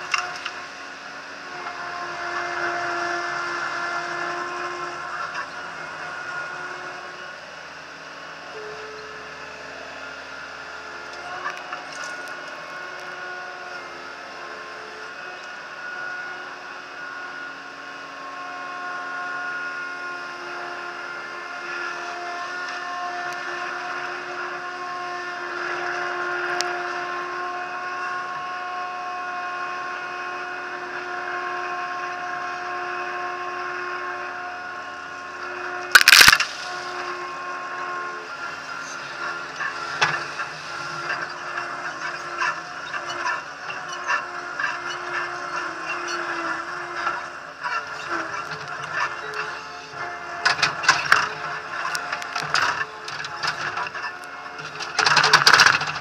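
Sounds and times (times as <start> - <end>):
loader engine running: 0.0 - 56.0.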